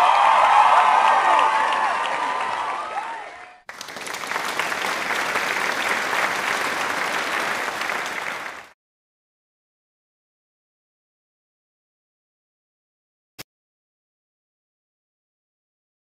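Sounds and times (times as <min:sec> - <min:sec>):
applause: 0:00.0 - 0:08.8.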